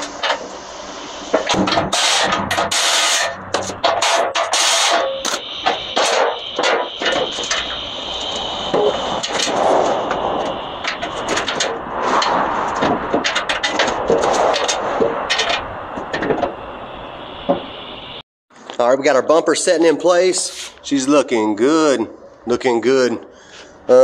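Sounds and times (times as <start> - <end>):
steady high-pitched hum: 0.0 - 18.2
metal clanks and knocks: 1.4 - 7.7, 10.8 - 16.5.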